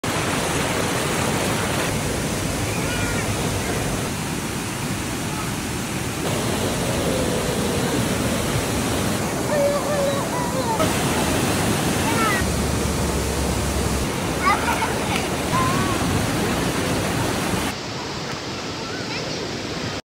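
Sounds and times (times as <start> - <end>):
stream rushing over rocks: 0.0 - 20.0.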